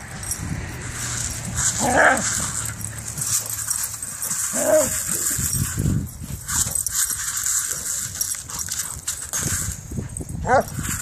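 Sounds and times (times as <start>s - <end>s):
dog yipping or play-growling: 1.5s - 5.8s, 10.4s - 10.8s.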